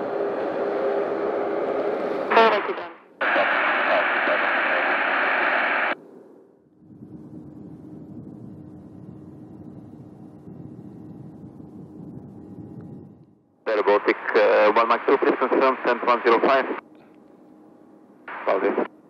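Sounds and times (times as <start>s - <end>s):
loud squelch static: 2.1s - 6.0s, 13.7s - 16.8s, 18.3s - 19.0s
radio hiss with faint hum: 2.3s - 6.0s, 13.7s - 17.1s, 18.2s - 19.0s.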